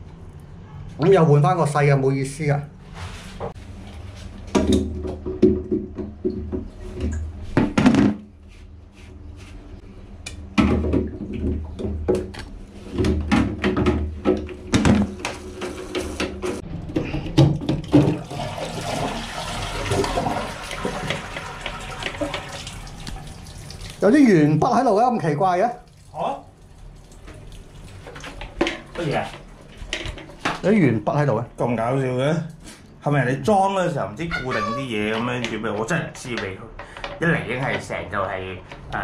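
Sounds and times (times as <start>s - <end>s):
water running: 17.8s - 32.6s, 33.6s - 36.6s.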